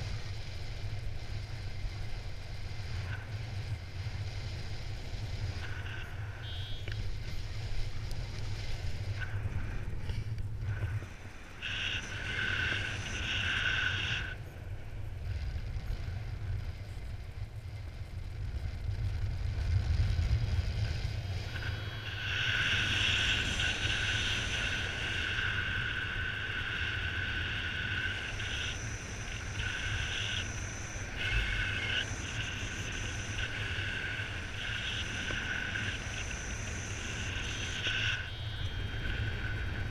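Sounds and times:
wind rushing over microphone: 0.0s - 39.9s
high steady tone: 5.5s - 7.4s.

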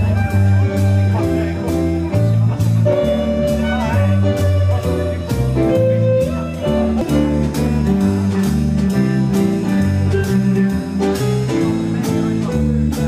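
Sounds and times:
band playing dance music: 0.0s - 13.0s
violin melody: 2.8s - 9.3s.

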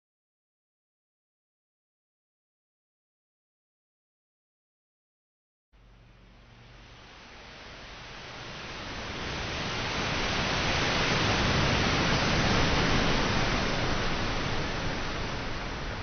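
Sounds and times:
waves breaking on sand: 8.6s - 16.0s.

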